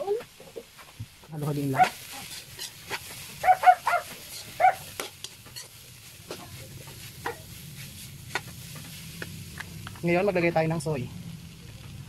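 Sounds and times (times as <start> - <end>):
dog yipping: 1.8 - 2.0, 3.4 - 4.9
metal spatula scraping a wok: 1.8 - 3.4, 4.0 - 9.6.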